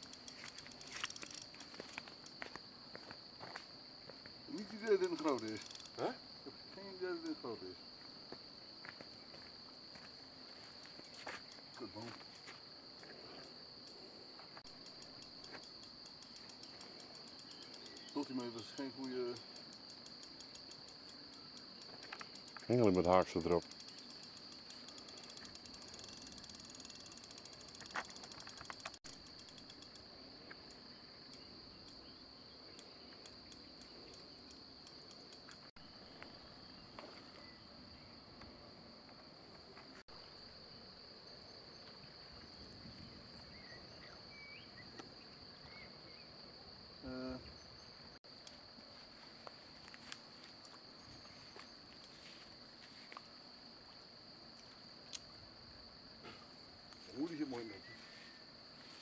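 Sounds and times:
insects chirring: 0.0s - 59.0s
light ticks: 14.7s - 32.0s.

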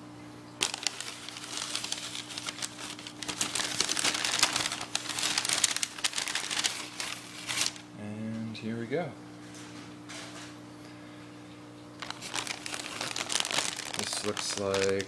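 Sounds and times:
newspaper crinkling and rustling: 0.6s - 7.8s, 12.0s - 15.0s.

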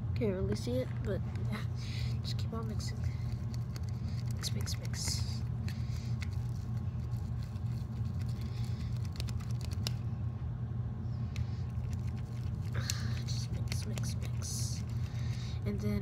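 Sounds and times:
low hum: 0.0s - 16.0s
stick stirring slime in cup: 2.5s - 10.0s, 11.4s - 15.1s.

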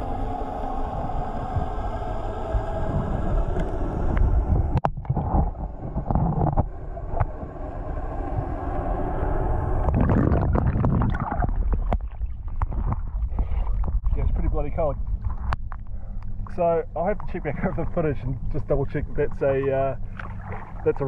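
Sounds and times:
boat engines rumbling underwater: 0.0s - 21.0s
clicks and crackles: 15.2s - 17.4s.

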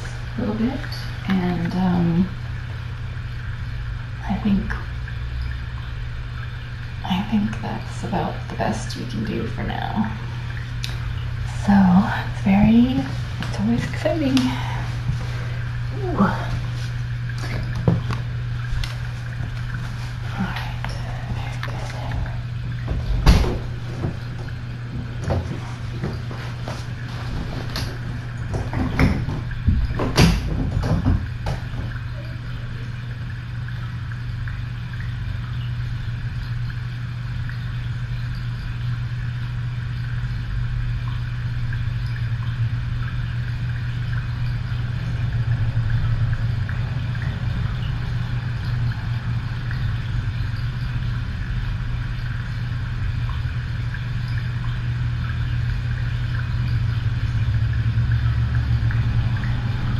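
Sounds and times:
steady low hum: 0.0s - 59.9s
sharp knocks and clatters: 27.4s - 32.0s.

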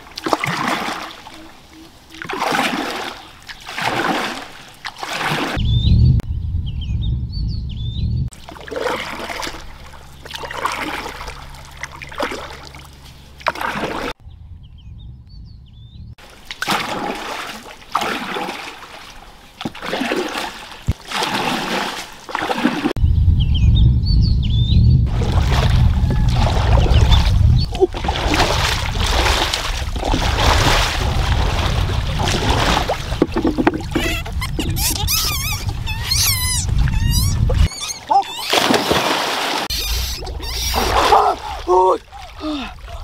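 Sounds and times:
paddle splashing water: 0.0s - 5.6s, 8.3s - 14.2s, 16.2s - 23.0s, 25.1s - 43.0s
low rumble: 5.6s - 8.4s, 14.2s - 16.2s, 23.0s - 37.7s
short high chirps: 39.7s - 40.8s.

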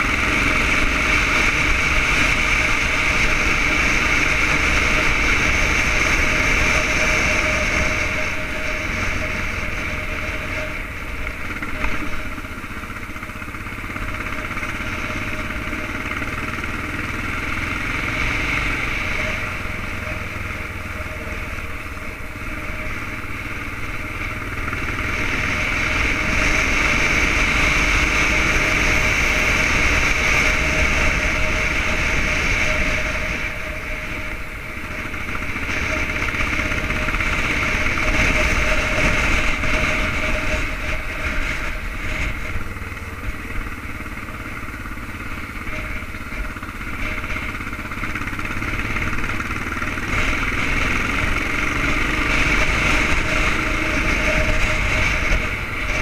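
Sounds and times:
motorcycle engine running: 0.0s - 56.0s
wind rushing over microphone: 16.2s - 56.0s.

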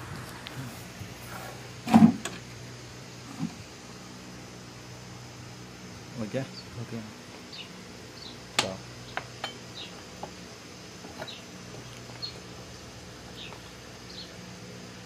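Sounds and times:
steady low hum: 0.0s - 15.0s
small bird chirping: 6.4s - 6.8s, 7.4s - 10.0s, 11.2s - 12.6s, 13.3s - 14.4s.

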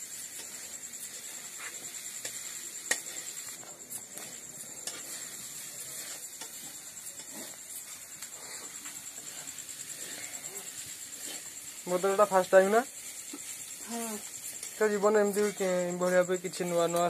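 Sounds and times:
crickets trilling: 0.0s - 17.0s
spatula scraping iron pan: 0.2s - 17.0s.

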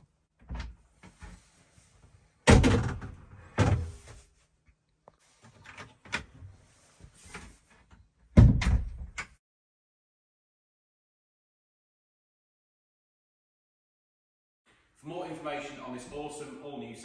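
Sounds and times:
cabin door knocking shut: 8.4s - 9.0s.

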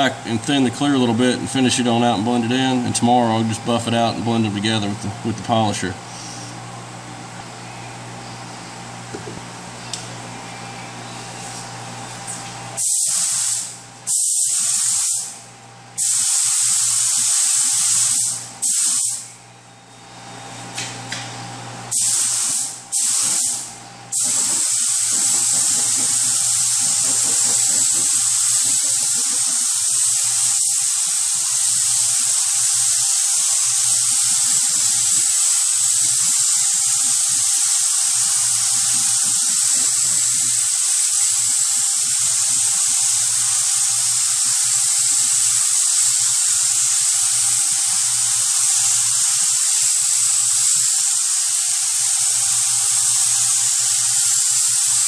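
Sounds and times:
spray gun hissing: 12.8s - 15.3s, 16.0s - 19.2s, 21.9s - 55.0s
spray gun trigger bursts: 12.8s - 15.3s, 16.0s - 19.2s, 21.9s - 55.0s.

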